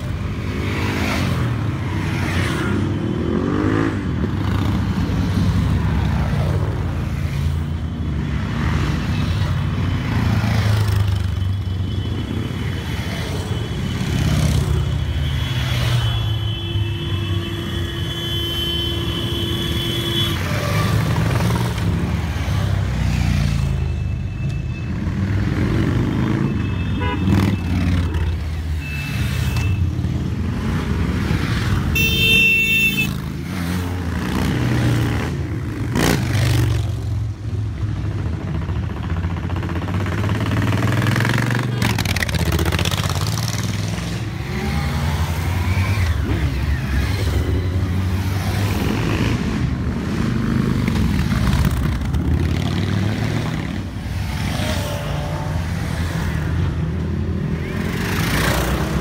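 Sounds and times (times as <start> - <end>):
motorcycle engines rumbling: 0.0 - 59.0
horn honking: 26.4 - 28.2, 31.9 - 33.2.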